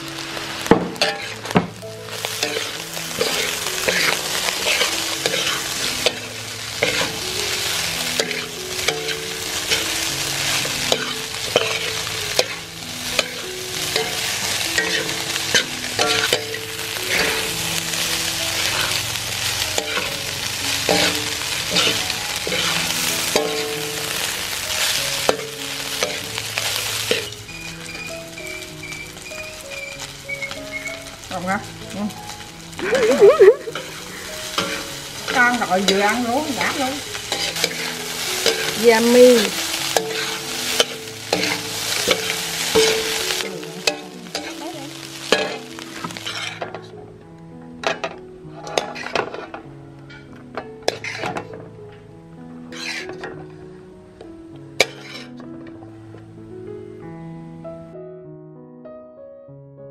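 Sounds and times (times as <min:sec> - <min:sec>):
rice sizzling in a wok: 0:00.0 - 0:55.6
metal spatula scraping wok: 0:00.1 - 0:47.0, 0:47.8 - 0:51.7, 0:52.7 - 0:53.5, 0:54.8 - 0:55.7.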